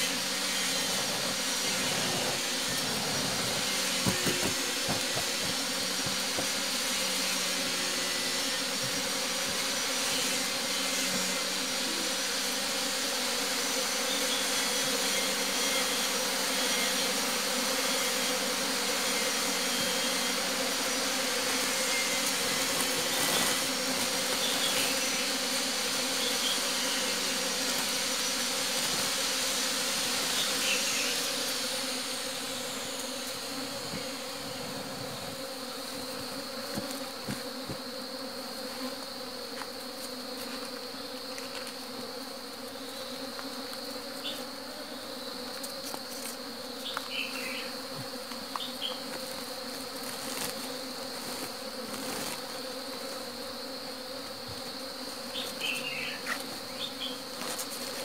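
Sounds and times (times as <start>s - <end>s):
broad hiss: 0.0s - 42.6s
honeybees buzzing: 0.0s - 58.0s.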